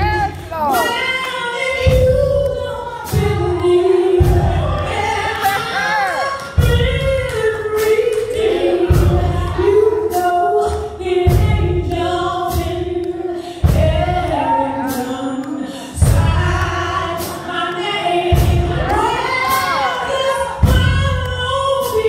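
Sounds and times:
deep bass notes: 0:00.0 - 0:05.4, 0:06.6 - 0:15.3
choir singing gospel song: 0:00.0 - 0:22.0
steady beat: 0:00.0 - 0:22.0.

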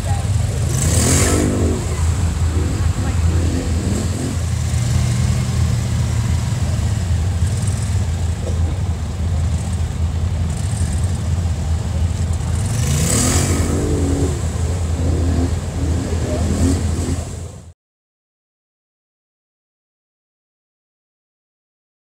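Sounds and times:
water splashing: 0:00.0 - 0:08.8, 0:12.4 - 0:17.7
atv engine revving under load: 0:00.0 - 0:17.6.

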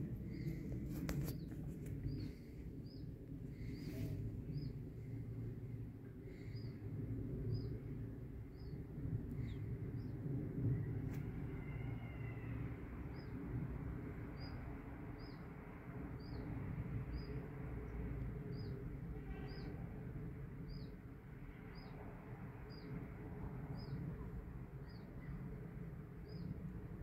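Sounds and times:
low outdoor rumble: 0:00.0 - 0:19.3.

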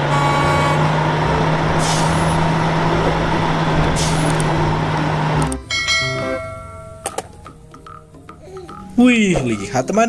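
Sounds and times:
truck diesel engine running: 0:00.0 - 0:07.4.

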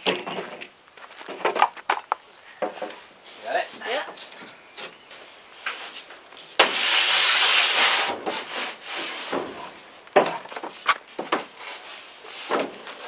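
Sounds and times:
harsh scraping noise: 0:06.6 - 0:09.8.

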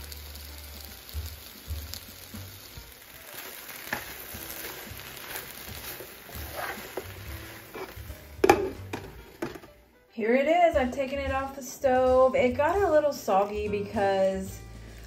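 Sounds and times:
vegetables sizzling in a skillet: 0:00.0 - 0:09.7, 0:11.0 - 0:15.0
spatula scraping and tapping pan: 0:03.3 - 0:09.8.

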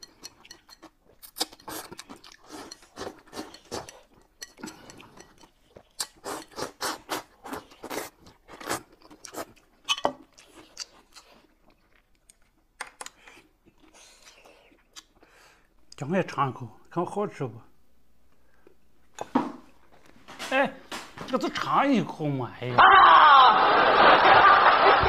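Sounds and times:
food being chewed: 0:00.0 - 0:16.0
noodles being slurped: 0:04.7 - 0:09.5.

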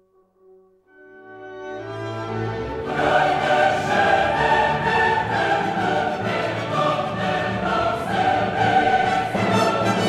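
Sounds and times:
orchestral music: 0:00.9 - 0:10.0
choir singing held notes: 0:02.7 - 0:10.0.

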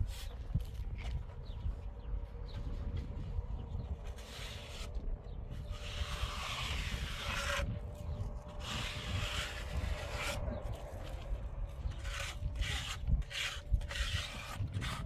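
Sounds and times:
steady low rumble: 0:00.0 - 0:15.0
trowel scraping cement: 0:04.1 - 0:15.0.

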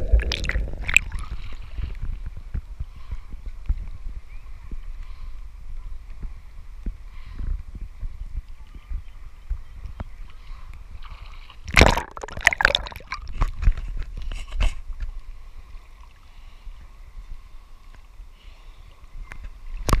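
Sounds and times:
sea water splashing: 0:00.0 - 0:03.4, 0:08.5 - 0:14.1.

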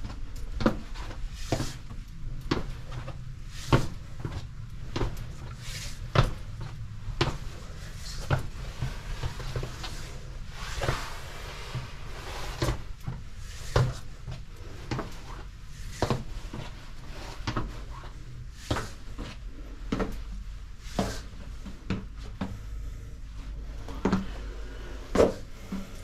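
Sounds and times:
footsteps on staircase: 0:00.0 - 0:26.0
low steady rumble: 0:00.0 - 0:26.0.

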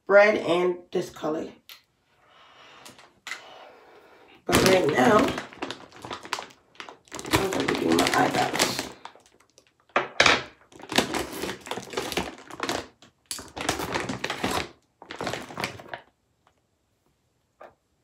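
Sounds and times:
plastic bag rustling: 0:04.4 - 0:09.9, 0:10.6 - 0:16.1.

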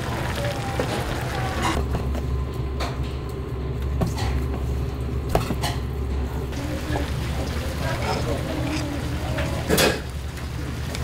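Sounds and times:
low machine hum: 0:00.0 - 0:11.0
utensils and containers clattering: 0:06.6 - 0:10.2.

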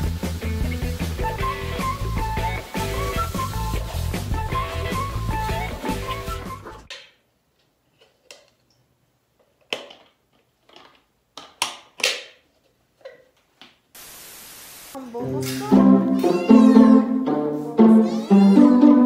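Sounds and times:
steady hiss: 0:00.0 - 0:06.0, 0:13.9 - 0:15.0
background music: 0:00.0 - 0:06.9, 0:15.0 - 0:19.0
cat meowing: 0:16.2 - 0:17.0, 0:18.0 - 0:18.8.

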